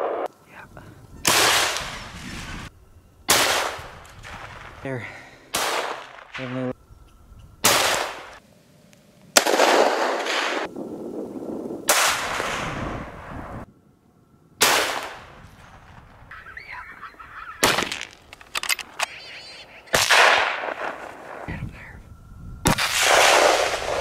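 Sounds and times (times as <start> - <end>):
rifle shots with echo: 3.3 - 3.9, 5.5 - 6.4, 7.6 - 8.4, 9.4 - 10.7, 14.6 - 15.4, 20.0 - 21.4, 22.7 - 24.0
coyotes calling: 5.2 - 8.4, 15.6 - 22.1.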